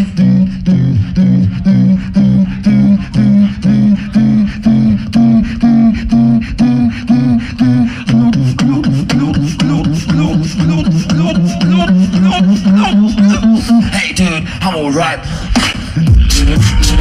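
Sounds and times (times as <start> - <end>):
beatbox vocal bass line: 0.0 - 17.0
beatbox percussive clicks: 15.5 - 17.0.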